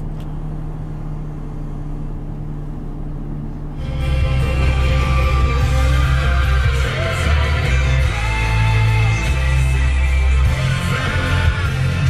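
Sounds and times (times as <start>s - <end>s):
pop-rock song on car audio: 0.0s - 12.0s.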